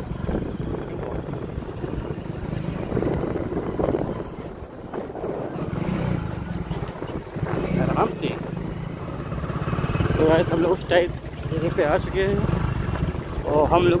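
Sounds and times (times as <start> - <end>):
wind noise on microphone: 0.0 - 10.2
motorcycle engine running: 0.0 - 14.0.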